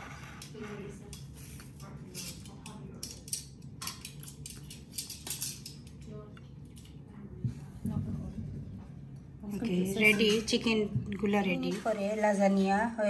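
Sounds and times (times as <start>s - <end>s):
utensils clinking against dishes: 0.0s - 7.0s, 9.9s - 10.8s.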